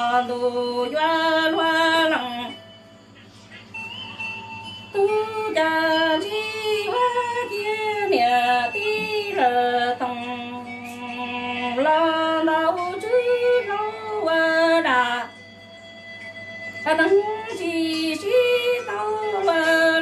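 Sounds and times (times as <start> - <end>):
woman singing unaccompanied: 0.0 - 2.8, 4.8 - 15.6, 16.8 - 20.0
faint steady hum: 0.0 - 20.0.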